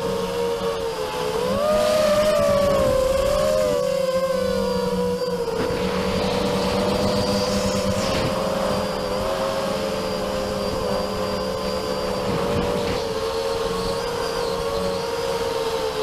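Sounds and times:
drone motors whining: 0.0s - 16.0s
rushing hiss: 5.6s - 13.0s.

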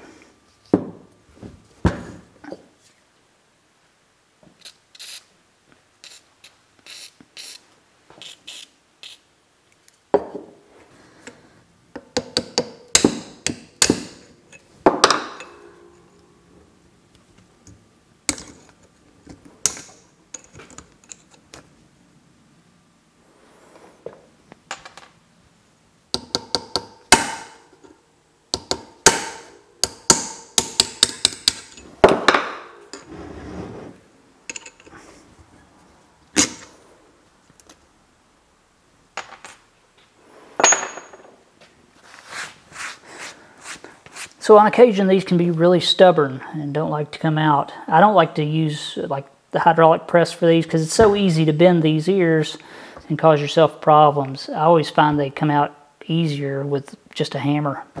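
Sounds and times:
metal tools clinking: 34.5s - 35.0s, 40.6s - 41.4s.

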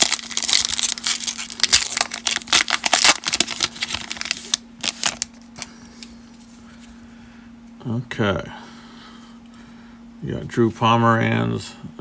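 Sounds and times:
plastic wrapper crinkling: 0.0s - 6.1s.

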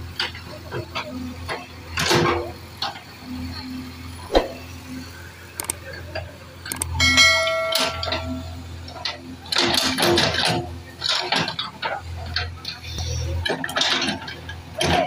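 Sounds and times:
diesel engine running: 0.0s - 15.0s
bell-like chime: 7.0s - 8.8s.

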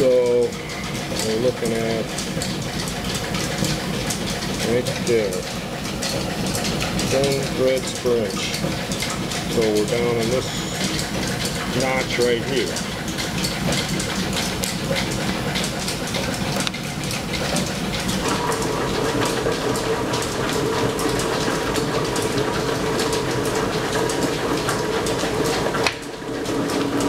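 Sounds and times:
line-shaft belt drive clattering: 0.0s - 27.0s
steady hum: 17.7s - 26.3s.

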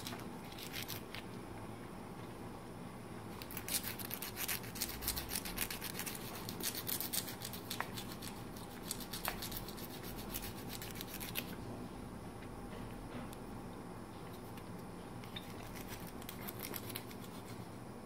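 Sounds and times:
nail file rasping on claws: 3.4s - 11.5s, 15.3s - 17.6s.

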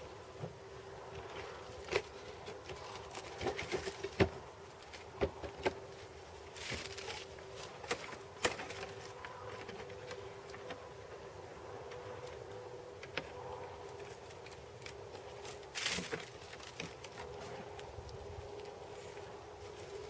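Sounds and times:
faint steady hum: 0.0s - 20.0s.

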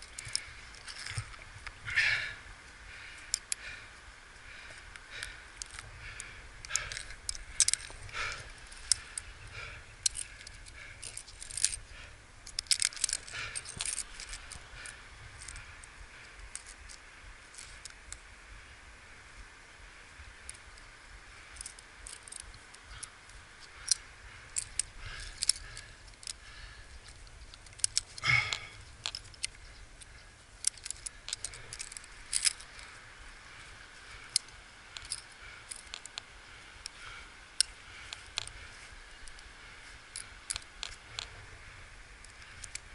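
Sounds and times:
metal carabiners clinking: 0.0s - 2.2s, 4.7s - 5.9s, 6.6s - 18.0s, 21.5s - 36.2s, 37.6s - 41.4s, 42.2s - 42.9s.

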